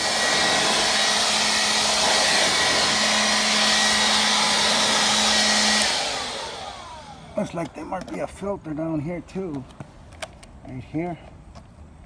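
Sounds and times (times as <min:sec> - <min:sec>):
handheld blower running: 0:00.0 - 0:08.2.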